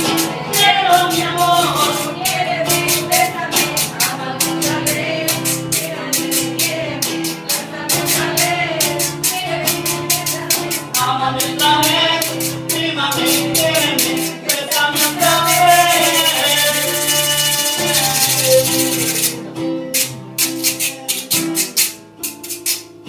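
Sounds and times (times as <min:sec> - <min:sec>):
man singing: 0:00.0 - 0:06.9, 0:10.1 - 0:19.4
classical guitar strumming: 0:00.0 - 0:23.0.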